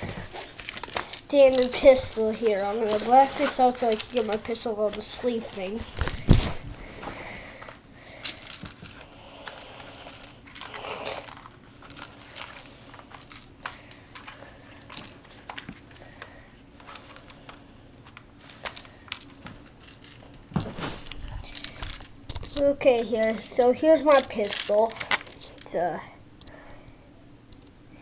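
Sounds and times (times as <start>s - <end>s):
rummaging in a backpack: 0.0s - 6.6s.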